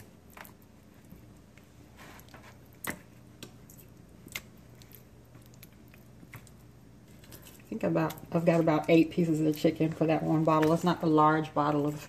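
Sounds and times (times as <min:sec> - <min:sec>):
wet squishing of chicken in sauce: 0:00.0 - 0:08.3
faint steady hum: 0:00.0 - 0:12.0.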